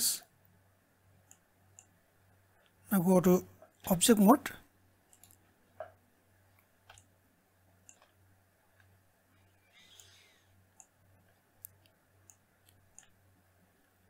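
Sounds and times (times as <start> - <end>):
low steady hum: 0.0 - 14.0
computer mouse clicks: 1.2 - 2.0, 5.1 - 6.0, 6.6 - 7.1, 7.8 - 8.2, 9.7 - 13.2.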